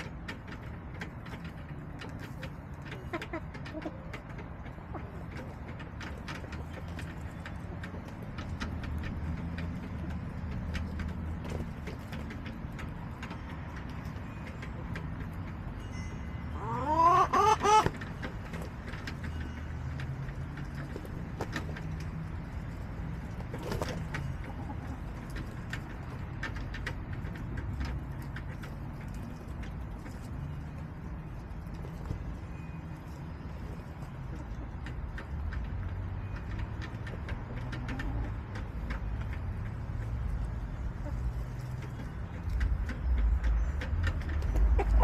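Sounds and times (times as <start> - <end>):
hen calling: 16.5 - 18.0.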